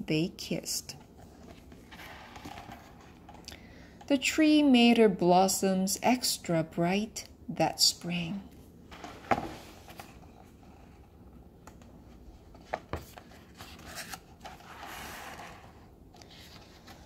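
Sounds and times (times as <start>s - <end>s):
paper pages rustling: 12.1s - 17.0s.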